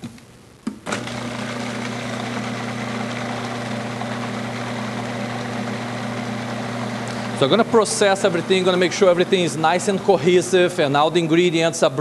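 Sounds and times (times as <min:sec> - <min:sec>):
food processor motor chopping: 0:00.9 - 0:10.1.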